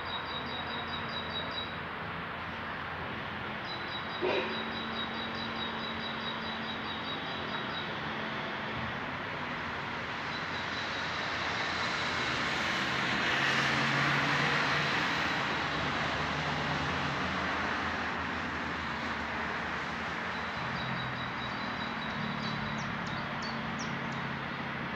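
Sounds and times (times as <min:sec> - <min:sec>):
vehicle driving past: 0:11.5 - 0:17.9.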